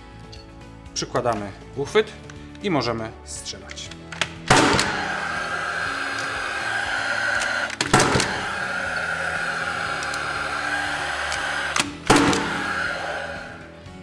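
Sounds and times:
nail gun shot: 0:04.2 - 0:05.1, 0:07.8 - 0:08.4, 0:11.7 - 0:12.7.

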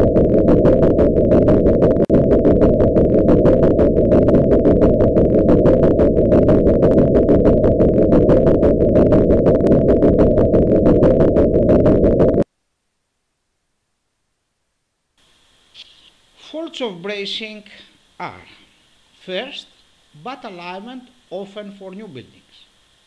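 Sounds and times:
loud low pulsing rumble: 0:00.0 - 0:12.4.

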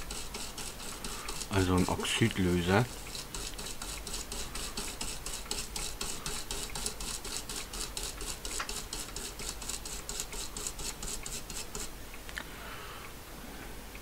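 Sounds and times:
small brush scrubbing: 0:00.0 - 0:11.9.

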